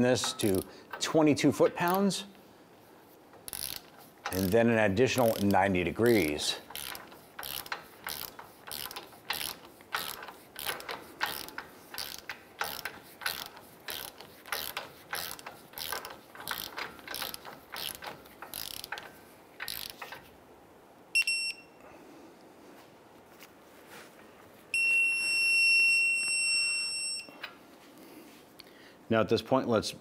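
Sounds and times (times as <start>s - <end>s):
ratcheting torque wrench clicking: 0.2s - 1.1s, 3.3s - 20.3s.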